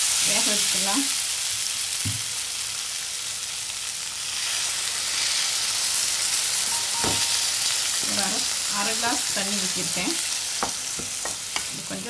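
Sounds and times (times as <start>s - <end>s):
food sizzling in a pan: 0.0s - 12.0s
knock: 7.0s - 7.3s.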